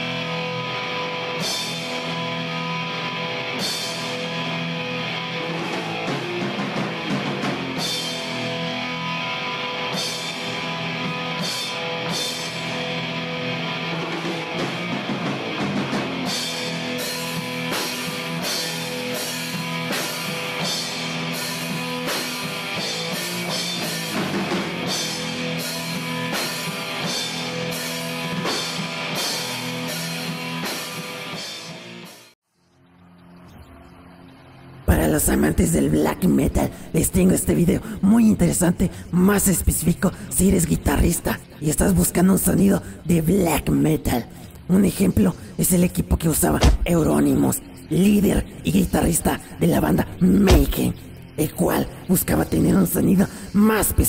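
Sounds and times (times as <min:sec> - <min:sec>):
drum kit: 0:00.0 - 0:32.3, 0:46.6 - 0:47.2
distorted electric guitar: 0:00.0 - 0:32.4, 0:34.2 - 0:54.0.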